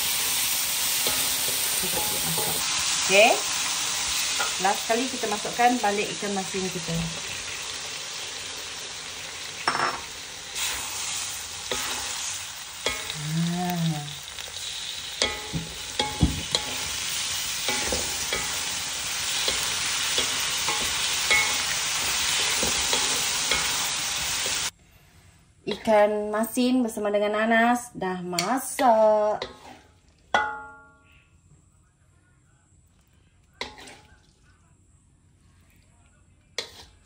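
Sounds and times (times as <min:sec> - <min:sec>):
fish frying in oil: 0:00.0 - 0:24.7
spatula clinking against pan: 0:19.4 - 0:21.7
spatula scraping pan: 0:29.4 - 0:30.0.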